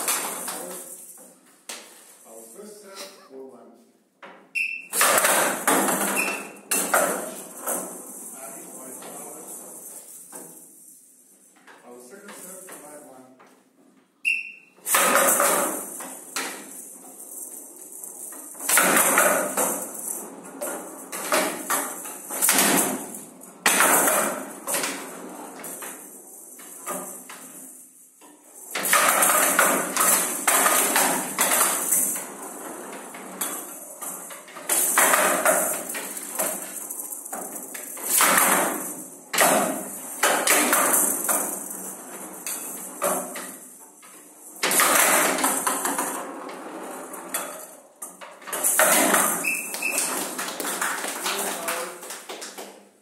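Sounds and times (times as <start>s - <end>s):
rattling ball rolling on table: 14.8s - 51.0s.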